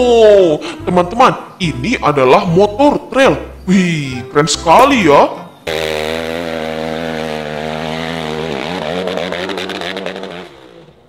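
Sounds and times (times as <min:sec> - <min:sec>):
dirt bike engine climbing: 0:04.7 - 0:11.0.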